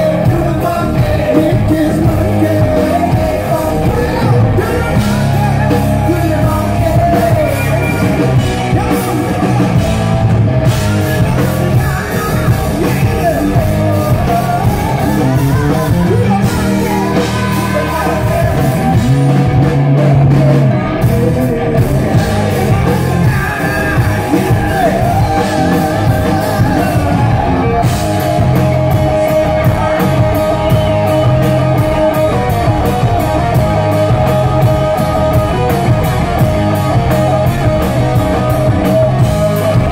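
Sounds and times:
lead singer singing: 0:00.0 - 0:39.9
live rock band playing: 0:00.0 - 0:39.9.

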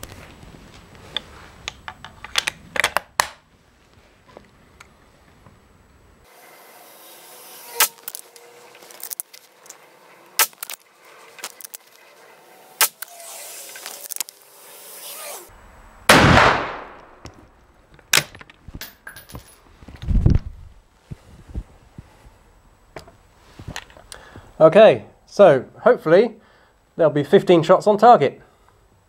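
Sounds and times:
fainter sharp cracks: 0:10.4 - 0:12.1, 0:12.8 - 0:14.4, 0:16.1 - 0:17.4
rifle shot with echo: 0:16.1 - 0:17.2.

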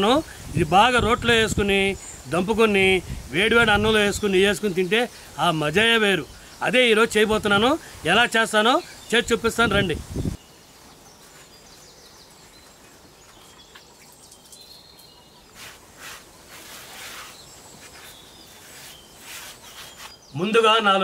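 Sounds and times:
outdoor background noise: 0:00.0 - 0:21.0
hand scrubbing stone mortar: 0:15.5 - 0:20.3.

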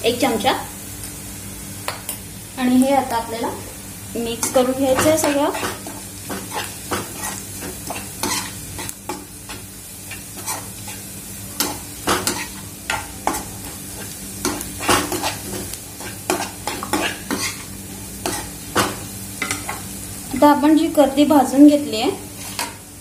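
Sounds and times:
food sizzling in oil: 0:00.0 - 0:23.0
spoon scraping and tapping pan: 0:04.4 - 0:11.0, 0:16.0 - 0:17.6, 0:18.2 - 0:19.8.

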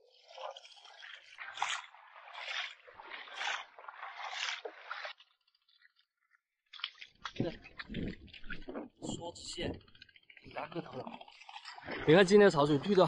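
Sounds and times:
boots splashing through water: 0:00.1 - 0:05.7, 0:06.7 - 0:09.7.

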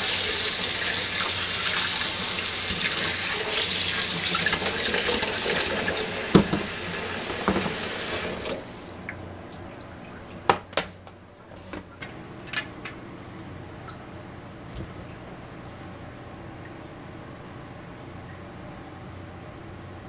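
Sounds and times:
tap water running into metal pot: 0:00.0 - 0:08.9
knocks on pot: 0:06.3 - 0:06.7.

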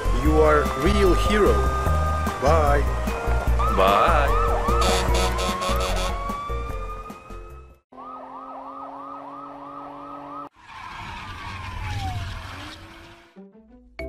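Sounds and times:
police siren wailing and yelping: 0:03.5 - 0:12.8
car rushing past: 0:08.0 - 0:13.4.

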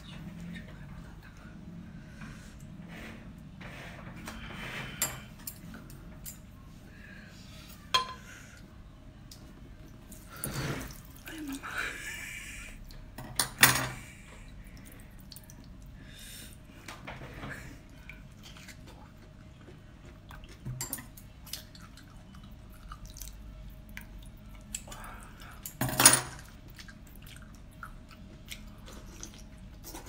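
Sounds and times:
faint steady hum: 0:00.0 - 0:30.0
wet chewing and smacks: 0:18.2 - 0:20.7, 0:21.4 - 0:25.1, 0:26.4 - 0:29.9.

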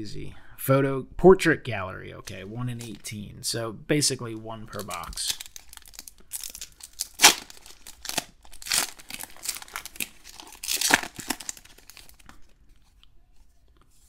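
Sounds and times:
foil wrapper tearing and crinkling: 0:04.7 - 0:12.4.

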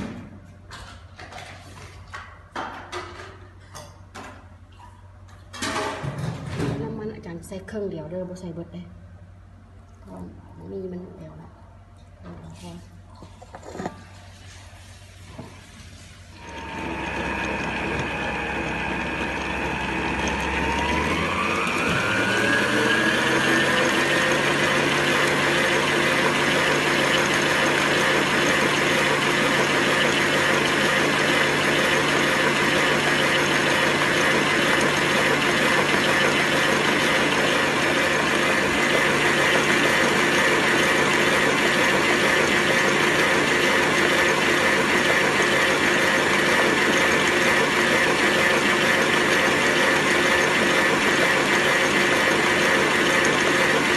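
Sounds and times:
stand mixer motor whine: 0:16.3 - 0:53.9
beater in batter in steel bowl: 0:16.4 - 0:53.9.

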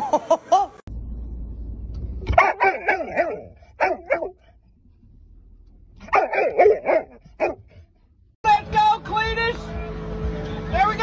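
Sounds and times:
low car rumble: 0:00.0 - 0:11.0
dog barking and yipping: 0:02.3 - 0:04.5, 0:06.0 - 0:07.8.

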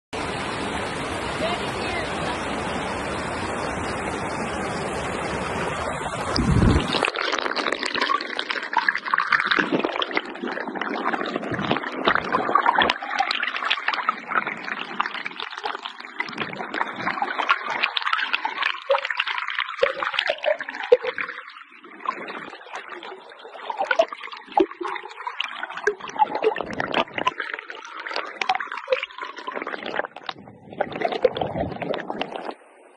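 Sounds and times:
stream rushing over rocks: 0:00.2 - 0:15.1
muffled underwater gurgling: 0:00.9 - 0:32.9.

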